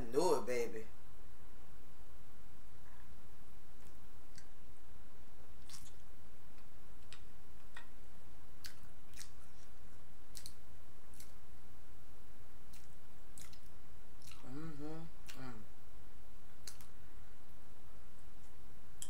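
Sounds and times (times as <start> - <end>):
steady low hum: 0.0 - 19.0
wet chewing clicks and smacks: 5.6 - 6.0, 8.6 - 9.7, 10.3 - 11.4, 12.7 - 14.5, 16.6 - 16.9.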